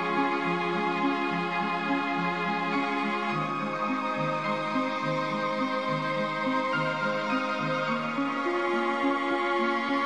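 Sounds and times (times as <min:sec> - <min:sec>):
background music with held notes: 0:00.0 - 0:10.0.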